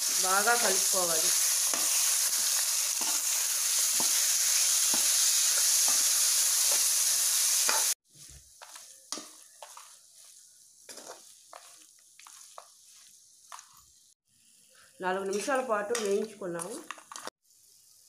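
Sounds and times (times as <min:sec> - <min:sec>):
food sizzling in hot oil: 0:00.0 - 0:18.0
metal spatula scraping pan: 0:07.7 - 0:13.1.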